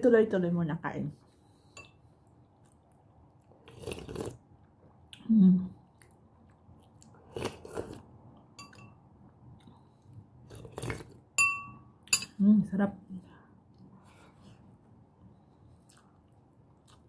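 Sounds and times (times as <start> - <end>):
chewing: 2.2 - 5.2, 5.8 - 8.5, 9.3 - 11.2, 15.6 - 17.0
slurping soup from a spoon: 3.6 - 4.4, 7.2 - 8.1
metal spoon clinking on dish: 8.6 - 9.0, 11.4 - 12.4.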